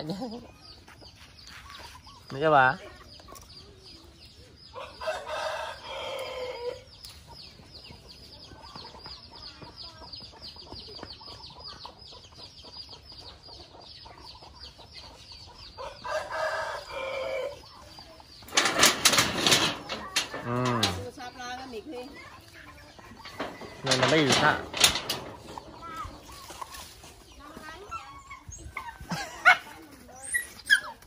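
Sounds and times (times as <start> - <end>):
rooster crowing: 4.8 - 6.8.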